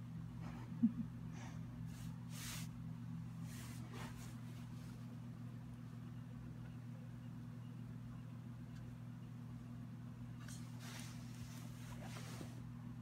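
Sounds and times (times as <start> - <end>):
low mechanical hum: 0.0 - 13.0
bedding rustling: 3.4 - 5.2, 10.5 - 12.7.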